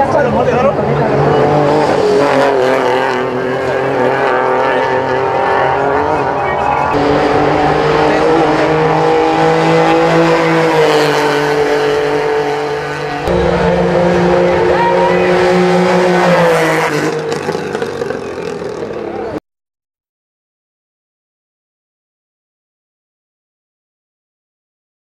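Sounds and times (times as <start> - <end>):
rally car engines revving: 0.0 - 19.4.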